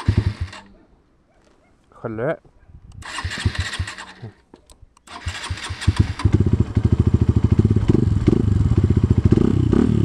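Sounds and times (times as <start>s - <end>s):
motorcycle engine starting and running: 0.0s - 0.7s, 3.0s - 4.3s, 5.1s - 10.0s.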